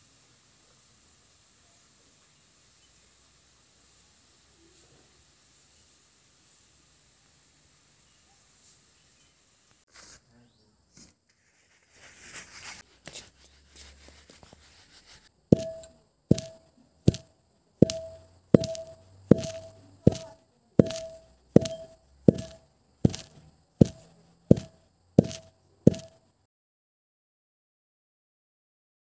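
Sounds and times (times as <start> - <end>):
scraping and handling noise: 10.9 - 26.2
pestle pounding in metal mortar: 15.6 - 26.2.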